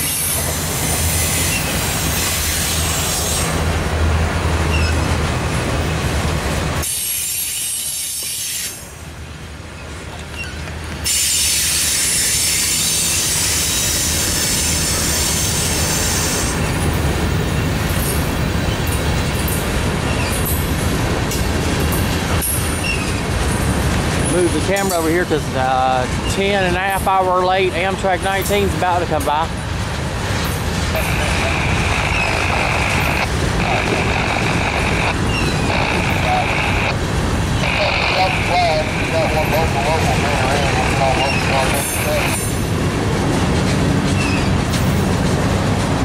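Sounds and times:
train wheels squealing: 0.0 - 3.5, 4.7 - 5.0, 6.8 - 8.8, 10.3 - 16.6, 20.0 - 20.6, 22.4 - 23.7, 44.2 - 44.6
train wheels rumbling on rails: 0.0 - 46.0.

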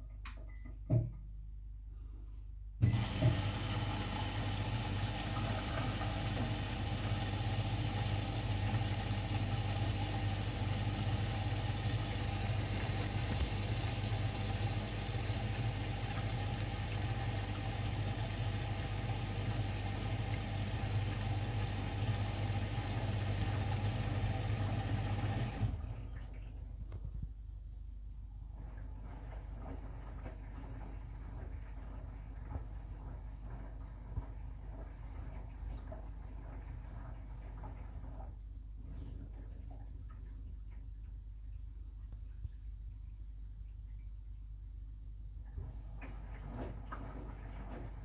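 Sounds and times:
washing machine motor hum: 2.8 - 27.3, 28.2 - 42.8, 45.3 - 48.0
water sloshing in drum: 28.5 - 42.1, 45.4 - 48.0.

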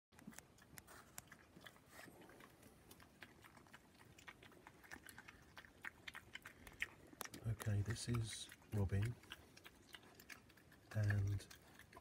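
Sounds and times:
animal crunching food: 0.1 - 12.0.

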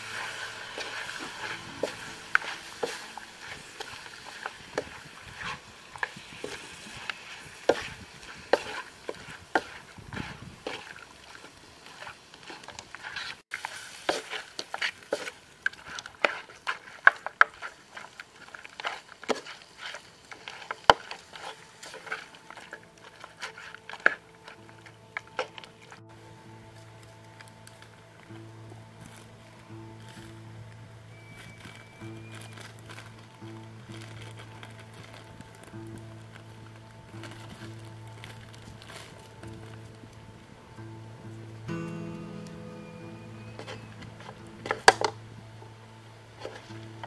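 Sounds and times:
frying sizzle: 0.0 - 26.0
spatula scraping in wok: 0.0 - 26.0.

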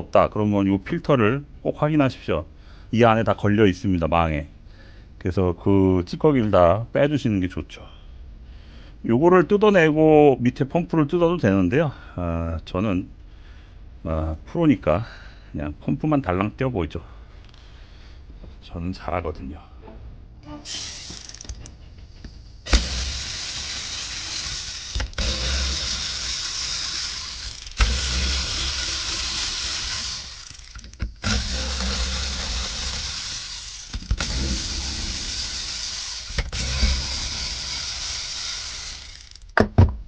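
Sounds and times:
cordless power driver whirring: 20.6 - 21.7, 22.7 - 39.6.

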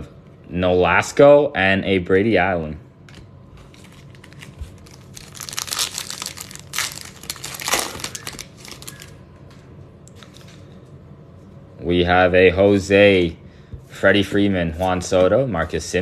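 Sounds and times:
plastic wrapper crinkling: 3.6 - 9.2.

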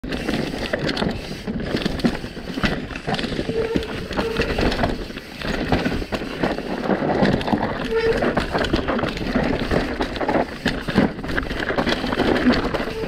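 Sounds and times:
bike tyre rumble on dirt: 0.0 - 13.0
brief squeaks: 7.8 - 8.4.

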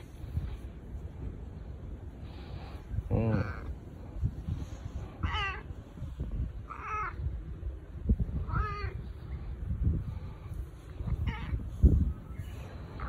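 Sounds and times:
cat meowing: 5.2 - 5.7, 6.6 - 7.2, 8.4 - 9.0, 11.1 - 11.7.

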